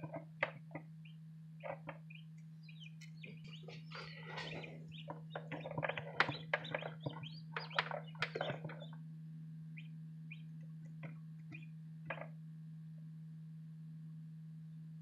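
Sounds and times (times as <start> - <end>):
chicks peeping: 0.0 - 9.0, 9.8 - 12.3
steady low hum: 0.0 - 15.0.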